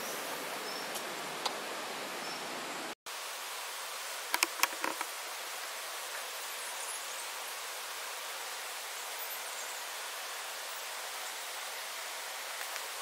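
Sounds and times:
steady outdoor hiss: 0.0 - 13.0
sharp clicks: 4.3 - 5.1.

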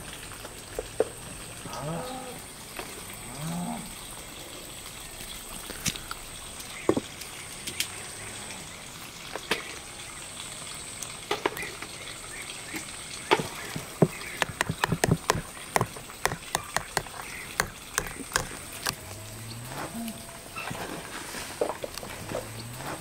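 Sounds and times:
whisk tapping plastic bowl: 13.8 - 19.1.

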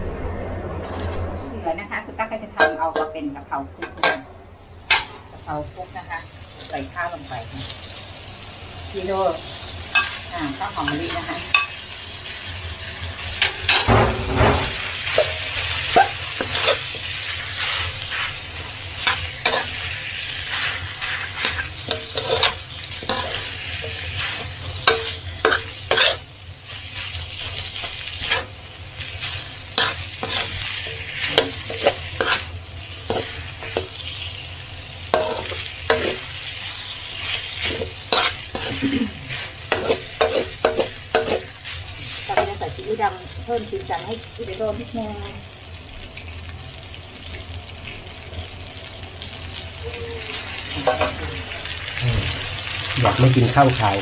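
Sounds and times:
frying hiss in pan: 4.8 - 54.0
spatula scraping pan: 19.0 - 26.3, 36.9 - 42.6.

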